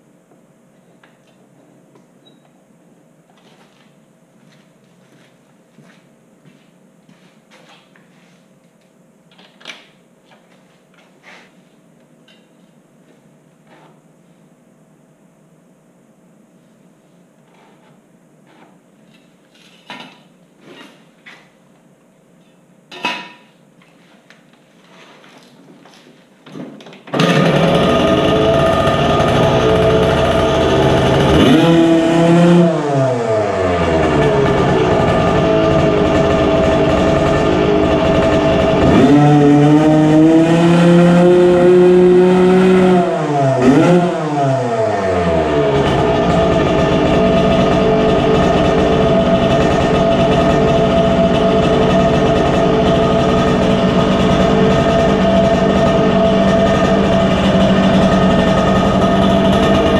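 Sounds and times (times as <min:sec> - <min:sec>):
dirt bike engine revving: 0:27.1 - 0:59.9.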